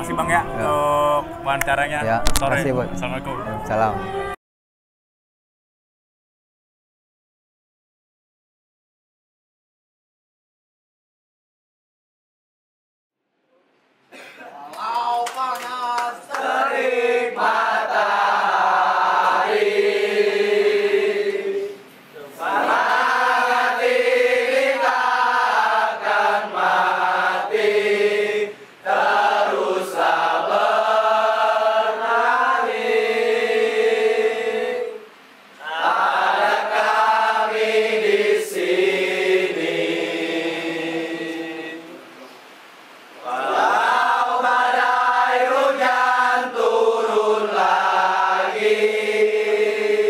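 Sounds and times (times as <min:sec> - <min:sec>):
crowd singing a chant: 0:16.2 - 0:42.0, 0:43.2 - 0:50.0.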